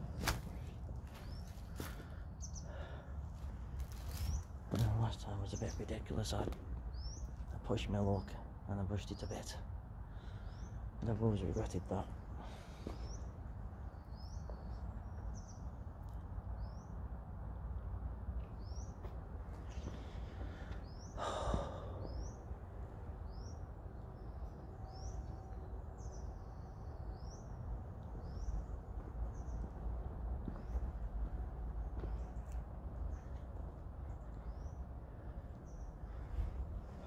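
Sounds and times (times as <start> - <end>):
steady low rumble: 0.0 - 37.0
breathy exhale: 20.0 - 22.2.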